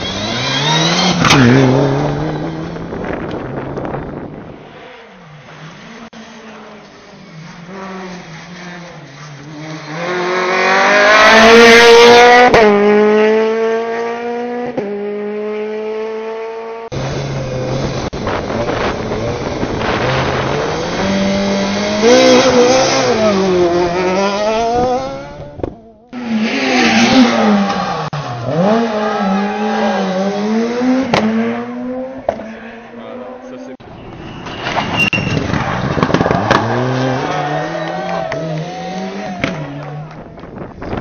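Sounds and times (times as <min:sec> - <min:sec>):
rally car engines revving: 0:00.0 - 0:41.0.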